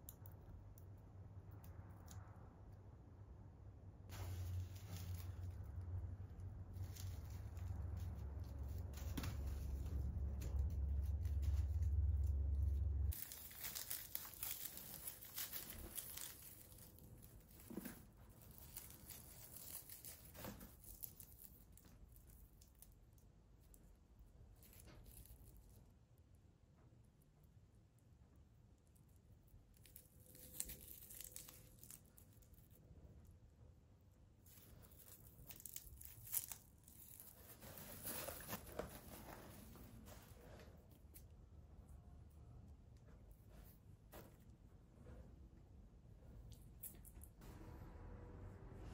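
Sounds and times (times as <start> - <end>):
low rumble: 1.4 - 15.2, 44.5 - 48.9
dry cones crackling in hands: 4.1 - 26.1, 29.3 - 33.0, 34.4 - 40.1, 46.5 - 47.4.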